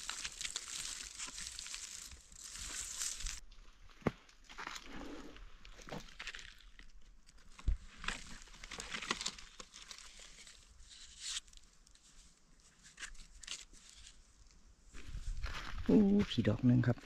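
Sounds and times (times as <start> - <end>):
dry leaves crackling: 0.0 - 3.4, 6.1 - 12.2.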